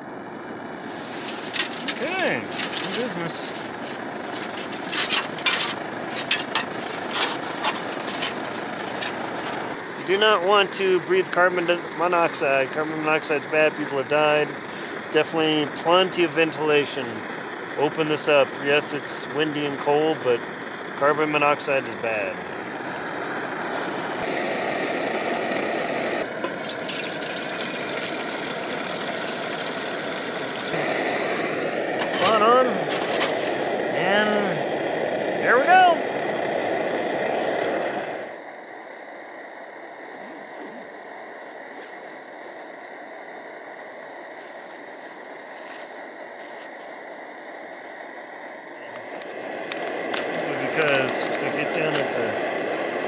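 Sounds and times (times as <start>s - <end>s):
camp stove burner running: 0.0s - 53.0s
water pouring into a metal pot: 26.3s - 30.7s.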